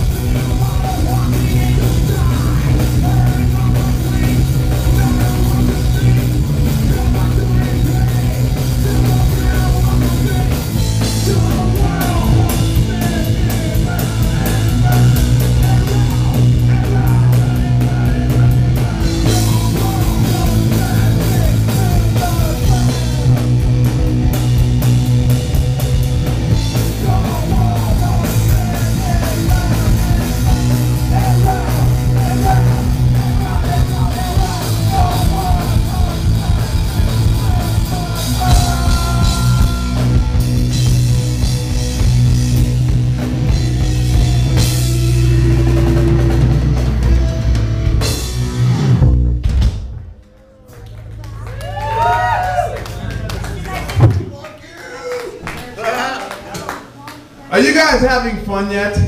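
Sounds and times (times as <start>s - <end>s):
person singing: 0.0s - 23.5s, 26.7s - 41.0s
drum kit with cymbals: 0.0s - 50.0s
bass guitar: 0.0s - 54.3s.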